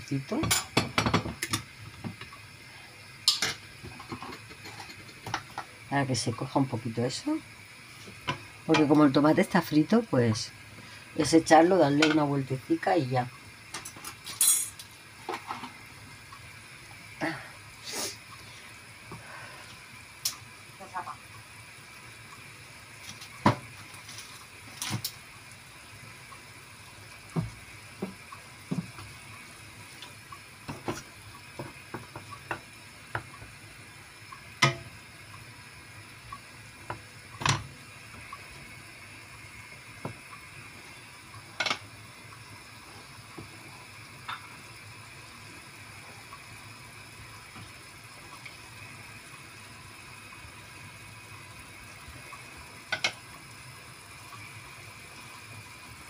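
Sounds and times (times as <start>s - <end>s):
bubbling hiss of simmering pan: 0.0s - 56.0s
wooden spatula knocking pan: 31.6s - 33.5s.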